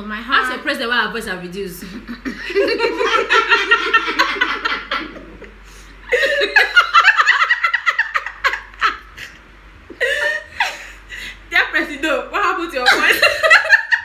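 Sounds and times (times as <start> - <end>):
women laughing: 1.8 - 11.2, 12.8 - 14.0.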